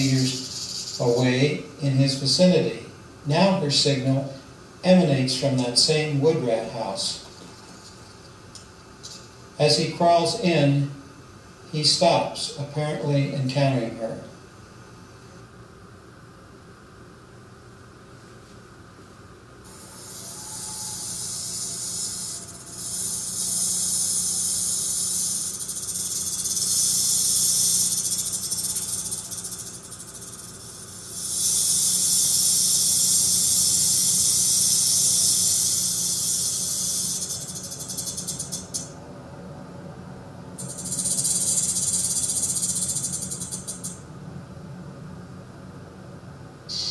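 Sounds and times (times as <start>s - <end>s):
rattlesnake rattling: 0.0s - 2.4s, 6.7s - 10.7s, 19.6s - 39.0s, 40.6s - 44.1s.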